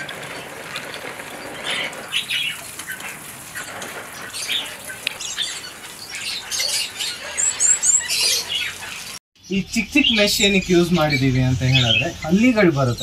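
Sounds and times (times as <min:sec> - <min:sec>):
garden hose spray hissing: 0:00.0 - 0:09.2
small birds chirping: 0:00.0 - 0:13.0.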